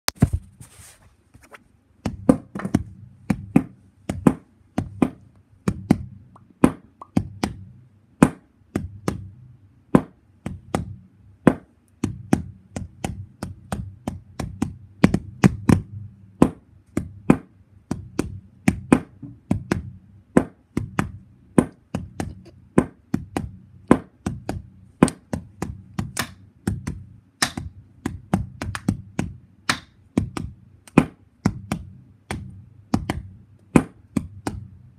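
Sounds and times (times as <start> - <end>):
low steady hum: 0.1 - 34.9
sharp taps and knocks: 11.5 - 34.7.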